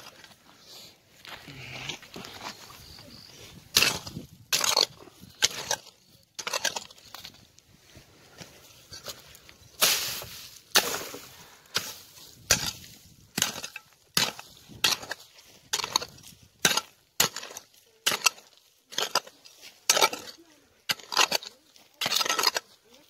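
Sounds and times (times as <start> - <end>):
clods and stones scattering: 2.0 - 7.6, 8.9 - 23.0
pickaxe striking stony soil: 3.7 - 7.4, 9.8 - 22.8.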